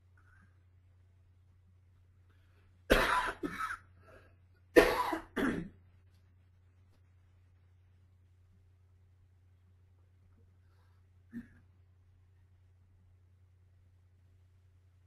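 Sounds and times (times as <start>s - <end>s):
faint low hum: 0.0s - 15.0s
person coughing: 2.9s - 3.9s, 4.8s - 5.8s, 11.3s - 11.7s.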